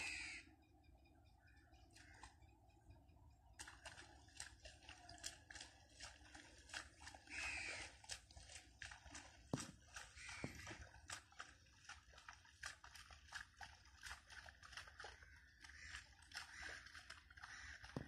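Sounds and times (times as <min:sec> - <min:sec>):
crow cawing: 0:00.0 - 0:00.5, 0:02.0 - 0:02.4, 0:07.3 - 0:07.9, 0:10.2 - 0:10.9, 0:15.1 - 0:18.0.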